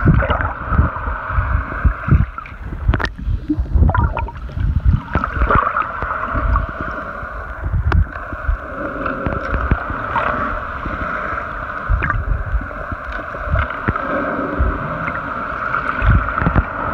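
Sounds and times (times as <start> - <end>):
low underwater thumps: 2.1 - 5.6.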